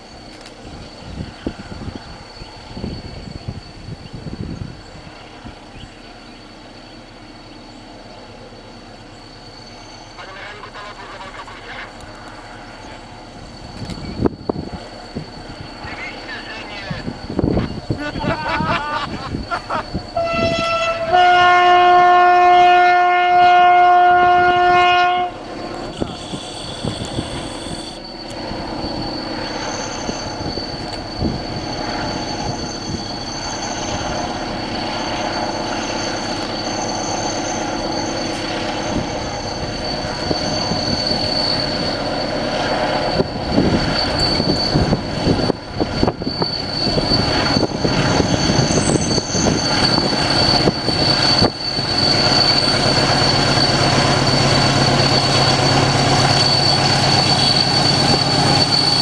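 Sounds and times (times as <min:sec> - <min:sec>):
diesel locomotive engine passing: 0:00.0 - 0:59.0
wheels squealing on curve: 0:08.7 - 0:21.2, 0:24.3 - 0:59.0.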